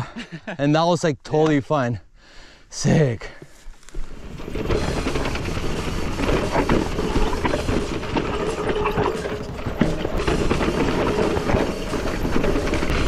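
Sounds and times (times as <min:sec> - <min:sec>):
bike tyres on dirt: 0:03.5 - 0:13.0
bike clicking and rattling: 0:03.8 - 0:13.0.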